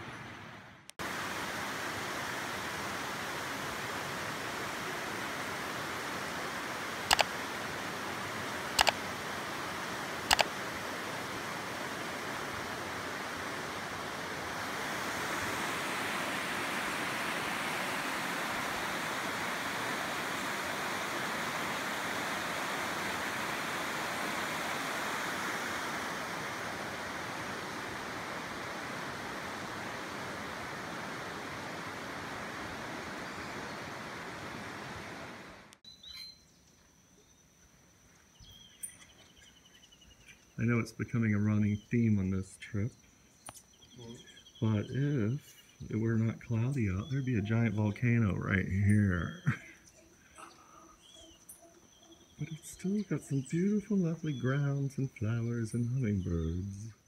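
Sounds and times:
steady rushing noise: 0:00.0 - 0:35.8
sharp double clicks: 0:07.1 - 0:07.3, 0:08.8 - 0:09.0, 0:10.3 - 0:10.5.

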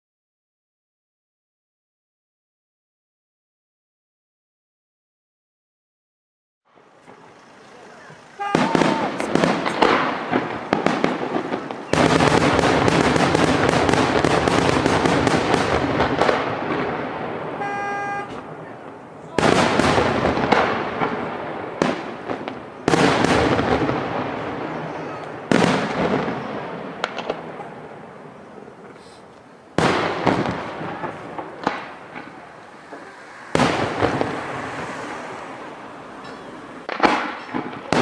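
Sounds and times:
firework shells bursting: 0:07.0 - 0:27.6, 0:29.8 - 0:38.0
firework pops and crackles: 0:07.0 - 0:27.7, 0:28.8 - 0:35.5, 0:36.2 - 0:38.0.

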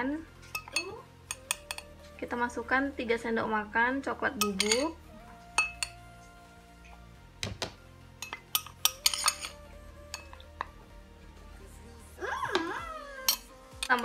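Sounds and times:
soft background music: 0:00.0 - 0:14.0
metal spoon clinking on glass bowl: 0:00.5 - 0:01.9, 0:04.4 - 0:05.0, 0:05.6 - 0:06.0, 0:08.2 - 0:10.6, 0:13.3 - 0:14.0.

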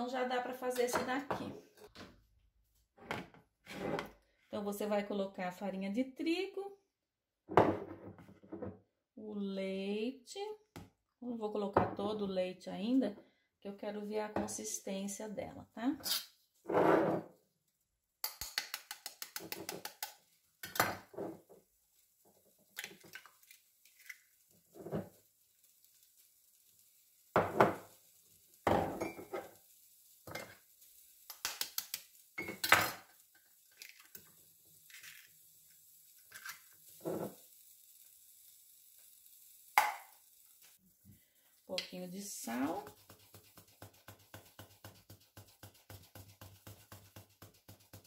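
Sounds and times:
eggs cracking on bowl rim: 0:18.2 - 0:20.2.

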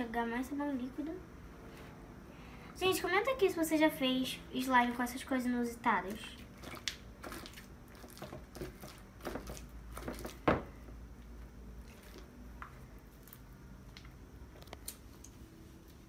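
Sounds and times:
slime squishing: 0:06.2 - 0:10.7, 0:11.7 - 0:15.4.

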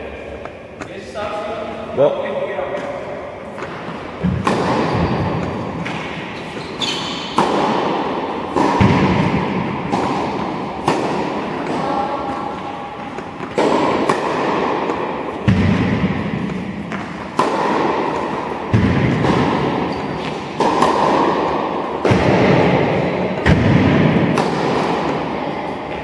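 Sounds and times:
racket hitting tennis ball: 0:02.7 - 0:26.0.

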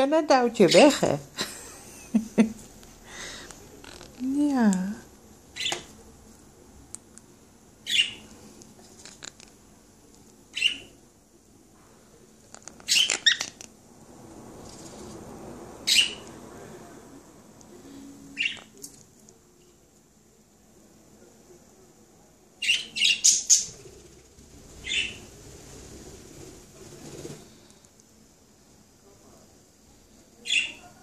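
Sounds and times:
parrot chirping: 0:05.6 - 0:05.9, 0:07.8 - 0:08.2, 0:10.5 - 0:11.0, 0:12.8 - 0:13.6, 0:15.8 - 0:16.2, 0:18.3 - 0:18.7, 0:22.6 - 0:23.8, 0:24.8 - 0:25.3, 0:30.4 - 0:30.9.

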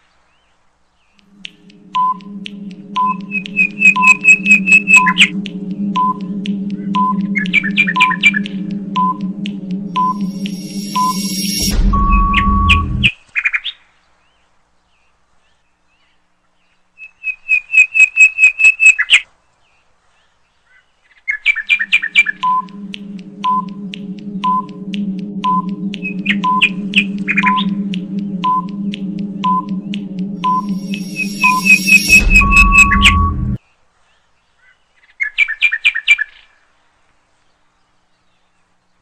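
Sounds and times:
droning synth bed: 0:01.2 - 0:13.1, 0:21.7 - 0:33.6
high electronic chirps: 0:01.2 - 0:13.1, 0:21.7 - 0:33.6
low electronic buzz: 0:01.2 - 0:13.1, 0:21.7 - 0:33.6
short countdown beeps: 0:01.3 - 0:13.1, 0:21.9 - 0:33.6.

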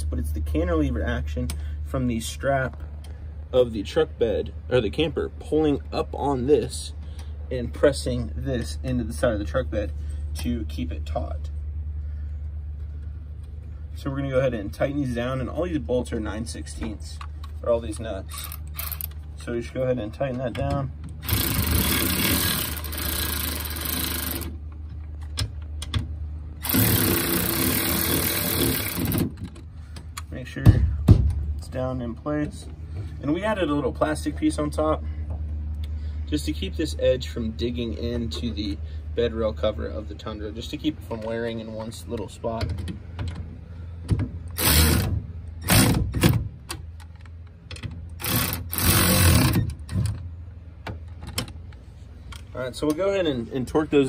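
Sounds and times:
cordless ratchet running: 0:18.3 - 0:19.2, 0:21.2 - 0:24.6, 0:26.6 - 0:29.3, 0:44.5 - 0:46.0, 0:48.2 - 0:49.6
ratchet clicks: 0:18.3 - 0:19.2, 0:21.2 - 0:24.5, 0:26.6 - 0:29.5, 0:48.2 - 0:49.7.

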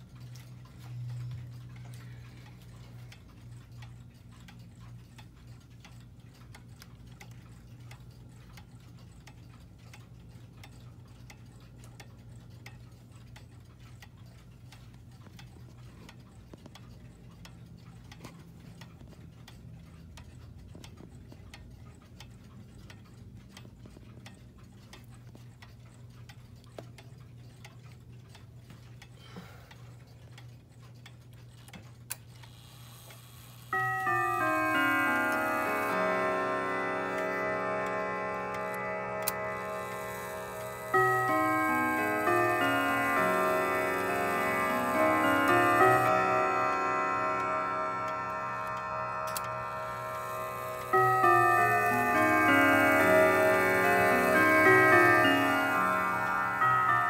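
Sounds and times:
wall clock ticking: 0:00.0 - 0:32.6, 0:33.6 - 0:57.0
low steady hum: 0:33.8 - 0:57.0.

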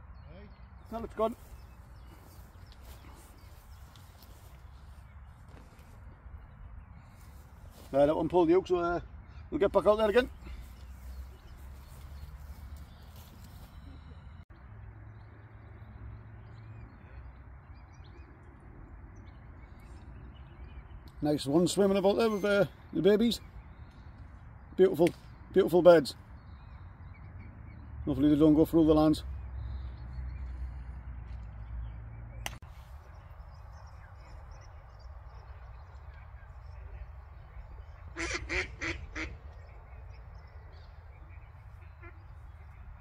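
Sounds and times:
small birds chirping: 0:00.0 - 0:43.0
faint bird calls: 0:32.4 - 0:43.0.

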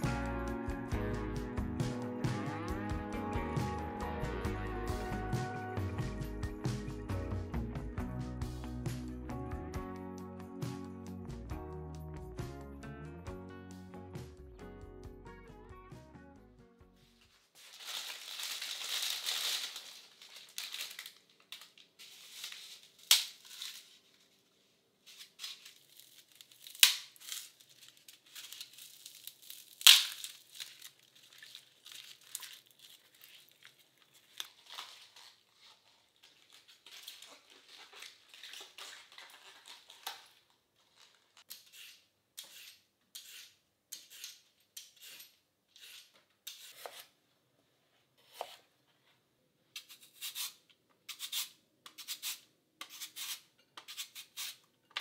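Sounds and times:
plastic bag crinkling: 0:17.5 - 0:24.3, 0:25.0 - 0:41.4
peeler scraping carrot: 0:41.4 - 0:47.1, 0:49.8 - 0:54.7.

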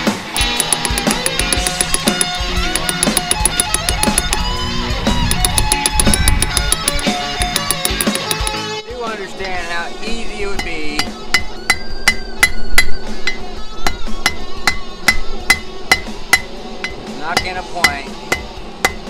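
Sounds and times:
hammer striking steel on anvil: 0:00.4 - 0:04.5, 0:05.3 - 0:08.6, 0:14.2 - 0:19.0.

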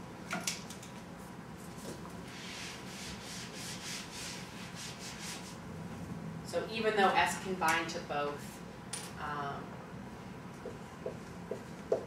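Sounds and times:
eraser rubbing whiteboard: 0:02.3 - 0:05.6.

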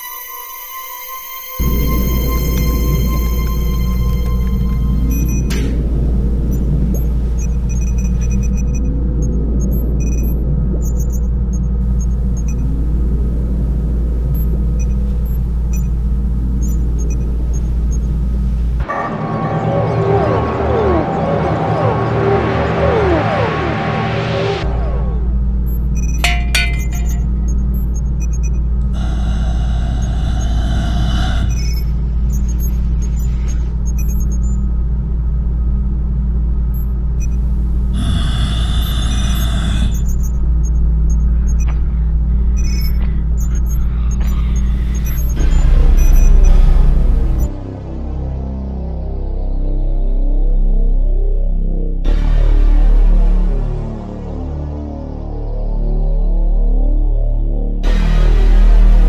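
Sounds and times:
hissing whining swell: 0:00.9 - 0:11.0
faint hum: 0:01.6 - 0:50.8
deep rumble: 0:01.6 - 0:59.0
soft electronic blips: 0:06.5 - 0:12.8, 0:31.5 - 0:34.7, 0:42.6 - 0:47.5
electronic beeps and blips: 0:25.7 - 0:28.6, 0:31.5 - 0:34.6, 0:42.6 - 0:47.5.

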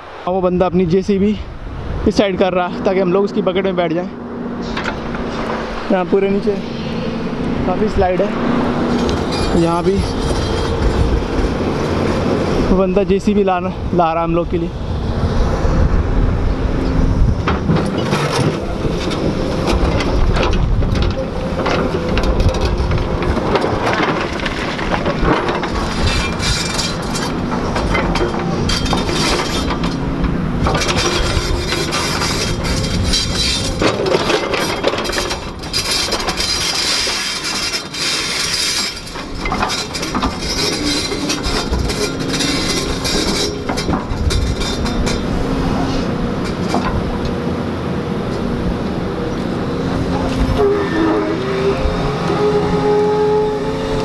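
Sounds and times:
excavator diesel engine running: 0:02.9 - 0:13.1, 0:14.7 - 0:54.0
metallic clanks and rattles: 0:04.6 - 0:12.0, 0:16.8 - 0:47.4.

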